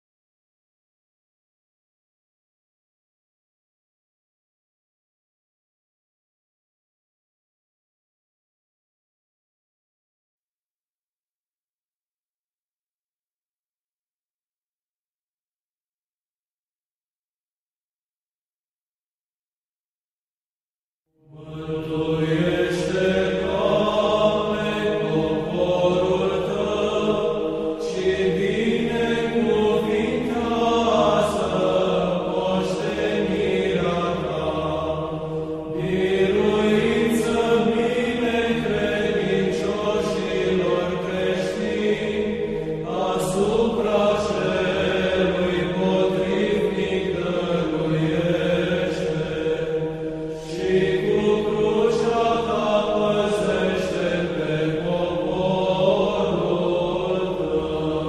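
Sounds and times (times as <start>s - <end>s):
steady held drone: 21.3s - 58.0s.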